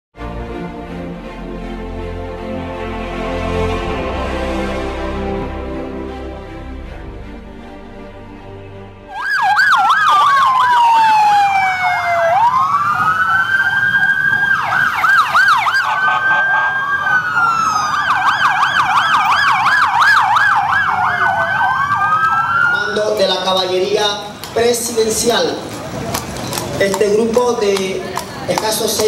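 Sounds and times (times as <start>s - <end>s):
siren slow wail: 9.0s - 23.2s
siren fast yelping warble: 9.1s - 22.8s.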